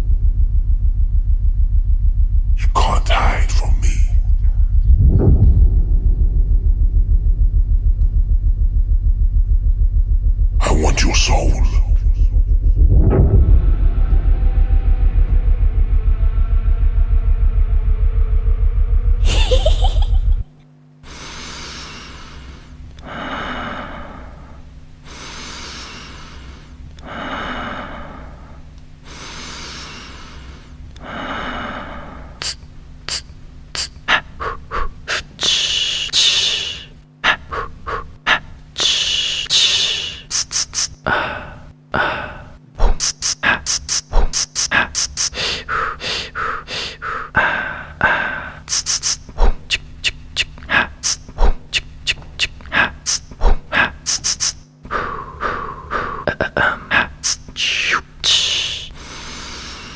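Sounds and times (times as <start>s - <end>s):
deep rumble with rising sweep: 0.0s - 2.7s, 3.7s - 10.8s, 11.4s - 20.5s
low steady hum: 0.0s - 59.9s
breathing and panting: 21.0s - 59.9s.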